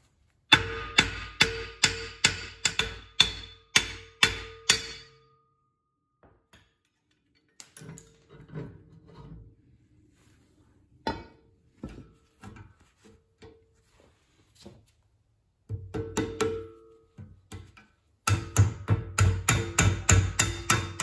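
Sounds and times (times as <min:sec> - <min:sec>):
hammer blows ringing on steel: 0:00.5 - 0:05.5, 0:18.2 - 0:21.0.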